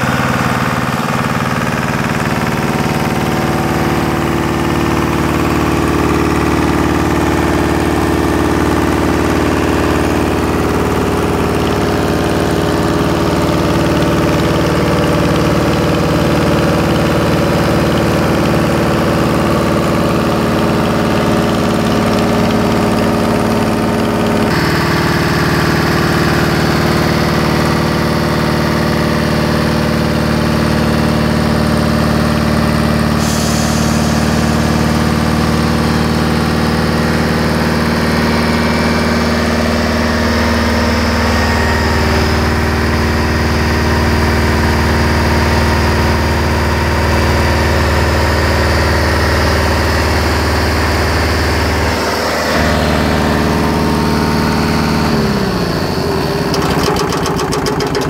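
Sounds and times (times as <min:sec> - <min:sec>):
air compressor mechanical drone: 0:00.0 - 0:58.0.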